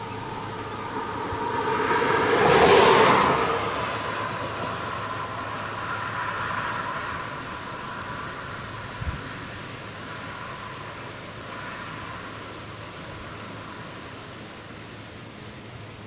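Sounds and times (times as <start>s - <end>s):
vehicle passing by: 0.0s - 14.2s.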